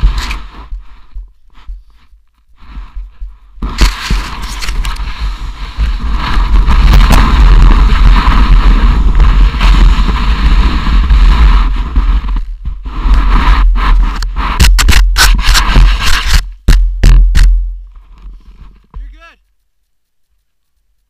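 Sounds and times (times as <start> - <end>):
wind and snow rushing: 0.0 - 19.2
wind buffeting microphone: 2.6 - 17.6.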